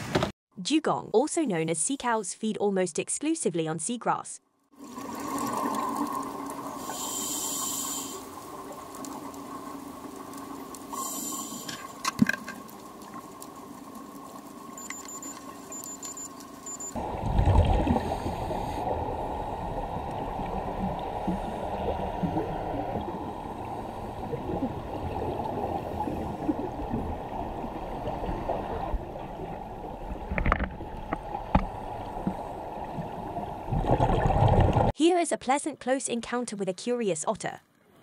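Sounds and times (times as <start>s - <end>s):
underwater rushing and gurgling: 4.8s - 34.9s.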